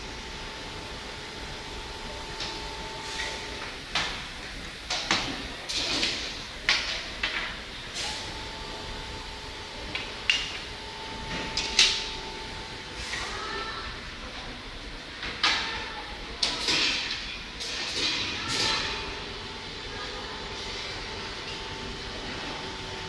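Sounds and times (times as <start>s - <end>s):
steady high machine whine: 0.0s - 4.9s, 7.3s - 14.1s.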